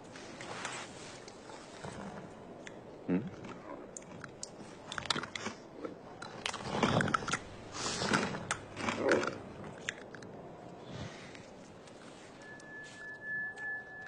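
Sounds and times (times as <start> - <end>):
crunchy chewing: 1.2 - 14.0.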